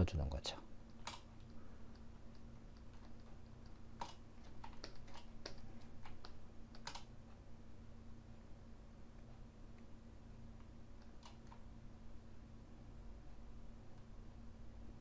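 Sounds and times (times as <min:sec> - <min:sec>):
low electrical hum: 0:00.0 - 0:15.0
computer input clicks and taps: 0:00.9 - 0:07.1.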